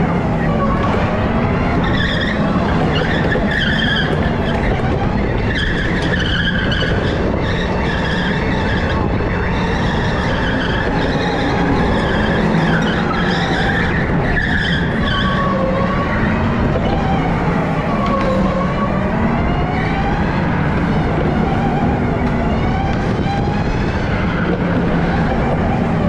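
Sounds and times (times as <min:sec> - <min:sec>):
go-kart tyres squealing: 0:00.0 - 0:26.0
loud rush of kart motor: 0:09.8 - 0:26.0.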